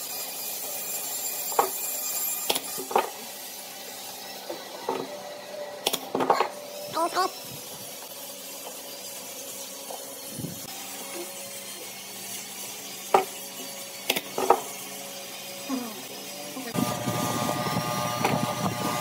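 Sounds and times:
cordless drill starting: 0:16.8 - 0:19.0.

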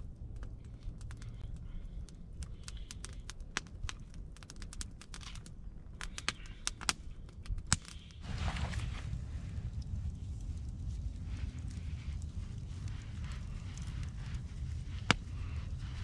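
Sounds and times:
campfire crackling: 0:00.0 - 0:16.0
rustle: 0:08.2 - 0:16.0.

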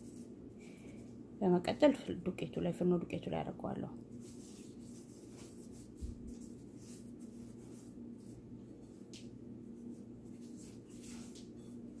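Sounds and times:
hands rubbing fish fillet: 0:04.1 - 0:09.2.

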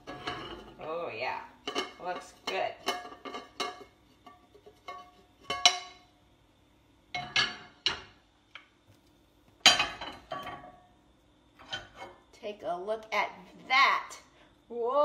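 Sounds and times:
metal pan and utensils clanking: 0:00.0 - 0:06.1, 0:07.1 - 0:08.2, 0:09.6 - 0:10.8, 0:11.6 - 0:12.2.

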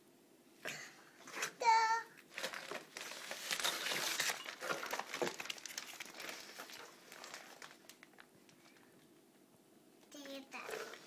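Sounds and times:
wrapping paper crinkling: 0:02.3 - 0:09.1.

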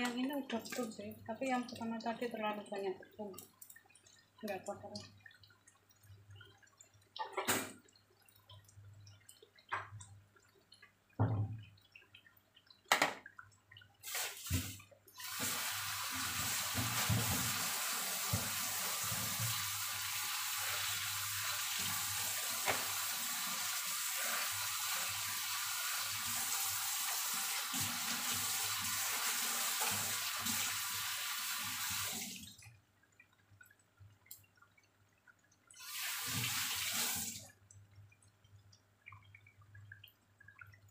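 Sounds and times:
kitchen tap running: 0:00.0 - 0:10.1, 0:13.9 - 0:32.7, 0:35.7 - 0:37.6.

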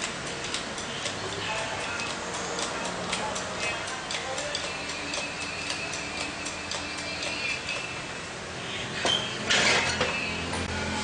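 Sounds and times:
rhythmic ticking: 0:00.0 - 0:08.4.

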